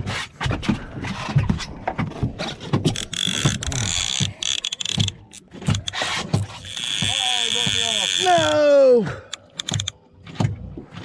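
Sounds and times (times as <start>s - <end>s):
fishing reel cranked fast: 2.9s - 8.6s.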